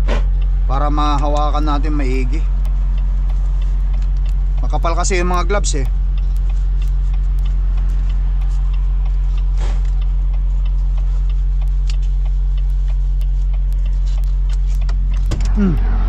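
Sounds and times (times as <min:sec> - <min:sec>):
diesel engine idling: 0:00.0 - 0:16.0
faint ticks: 0:02.5 - 0:15.3.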